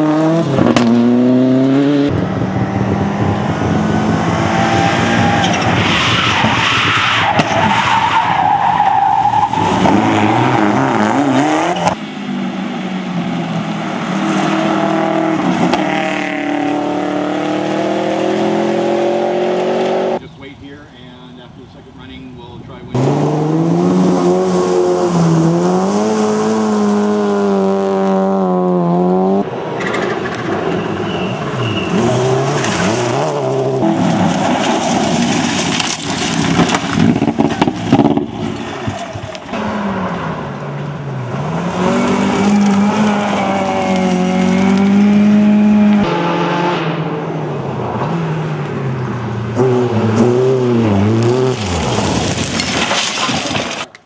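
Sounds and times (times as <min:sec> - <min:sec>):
rally car engines revving: 0:00.0 - 0:53.9
tyres scrabbling on gravel: 0:31.2 - 0:39.4, 0:41.9 - 0:45.0, 0:51.4 - 0:54.0.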